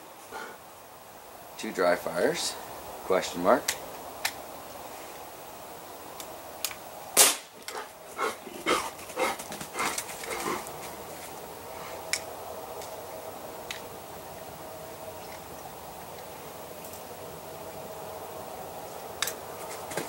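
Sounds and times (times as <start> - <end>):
air pistol shot: 7.2 - 7.6.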